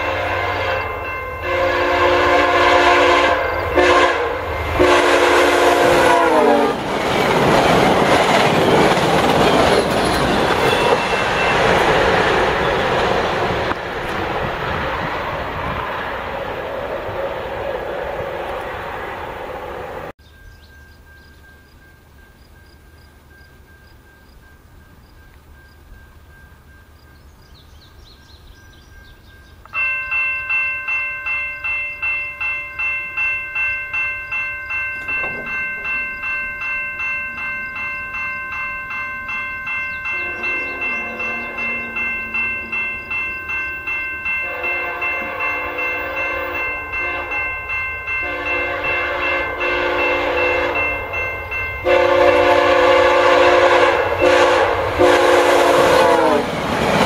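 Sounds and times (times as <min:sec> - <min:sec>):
train horn blasts: 0:00.0 - 0:06.9, 0:40.1 - 0:42.9, 0:44.4 - 0:47.5, 0:48.1 - 0:51.0, 0:51.8 - 0:56.5
crossing warning bell ringing: 0:00.0 - 0:57.0
train wheel and rail noise: 0:00.0 - 0:57.0.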